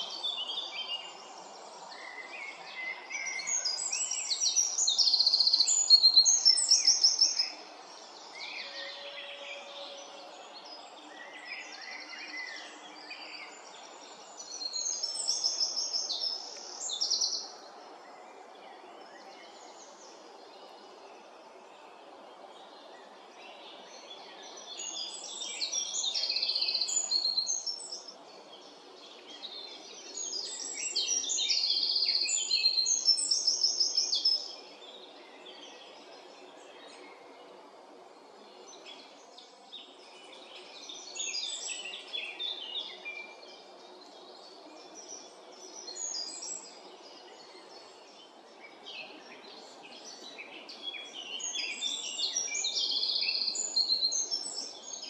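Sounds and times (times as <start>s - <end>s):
faint background noise: 0.0s - 55.0s
songbirds singing: 0.0s - 55.0s.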